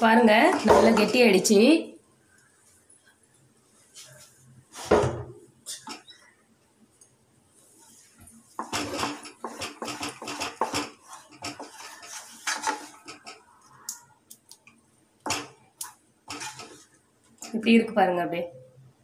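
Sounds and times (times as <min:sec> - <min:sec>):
wooden spatula scraping metal pan: 0:00.2 - 0:01.5, 0:07.9 - 0:13.5, 0:16.3 - 0:17.6.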